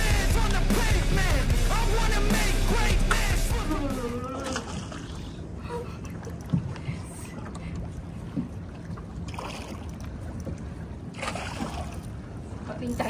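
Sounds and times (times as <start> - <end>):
boat engine low hum: 0.0 - 13.0
water noise: 0.0 - 13.0
wind: 4.1 - 13.0.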